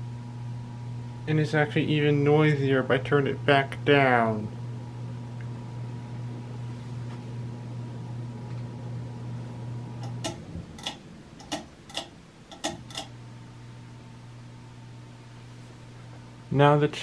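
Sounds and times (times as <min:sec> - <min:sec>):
ceiling fan motor buzzing: 0:00.0 - 0:17.0
pull-chain switch clicking: 0:10.0 - 0:13.1.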